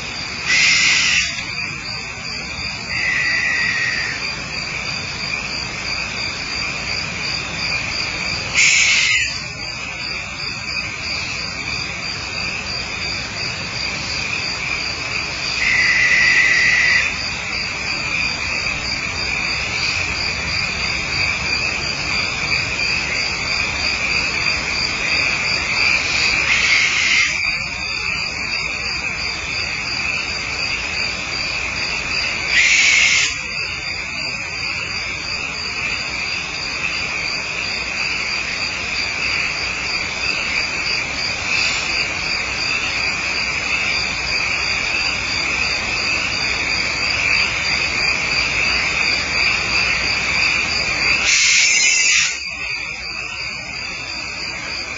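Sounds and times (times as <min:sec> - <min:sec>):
crickets chirring: 0:00.0 - 0:54.9
fast pulsing insect trill: 0:00.0 - 0:54.9
owl screech: 0:00.4 - 0:01.5, 0:02.9 - 0:04.2, 0:08.5 - 0:09.4, 0:15.5 - 0:17.1, 0:26.4 - 0:27.5, 0:32.5 - 0:33.4, 0:51.2 - 0:52.4.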